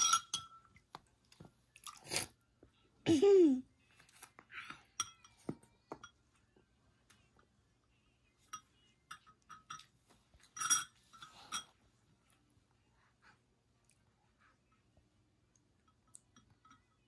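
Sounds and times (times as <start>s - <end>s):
metal spoon clinking glass bowl: 0.0s - 0.8s, 5.0s - 6.2s, 8.5s - 11.7s, 15.9s - 17.0s.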